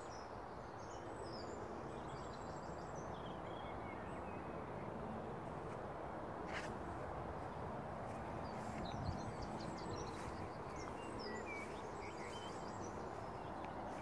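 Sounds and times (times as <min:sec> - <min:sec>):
outdoor background noise: 0:00.0 - 0:14.0
small birds chirping: 0:07.4 - 0:14.0.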